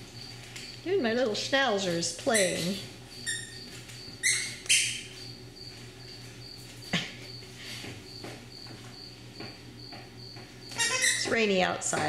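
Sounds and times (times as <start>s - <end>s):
toy squeaks: 2.3s - 3.6s, 4.2s - 5.0s, 10.7s - 11.4s.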